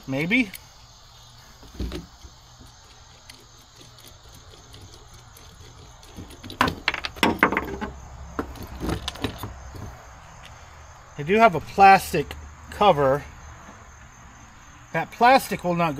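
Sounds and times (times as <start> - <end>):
small plastic parts clicking and rattling: 1.6 - 9.9.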